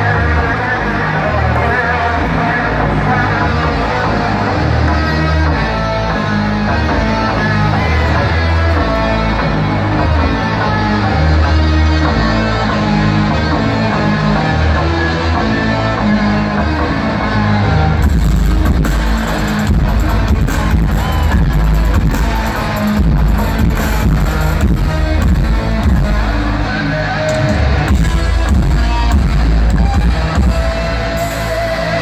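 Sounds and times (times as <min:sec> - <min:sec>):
electric guitar: 0:00.0 - 0:32.0
live rock music: 0:00.0 - 0:32.0.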